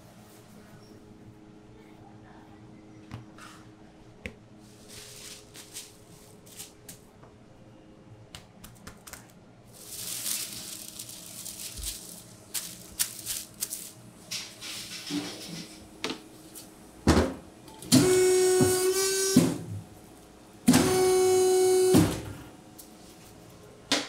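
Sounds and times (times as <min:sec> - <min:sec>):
low steady hum: 0:00.0 - 0:18.9
plastic sheet rustling: 0:04.7 - 0:06.9, 0:08.8 - 0:15.1.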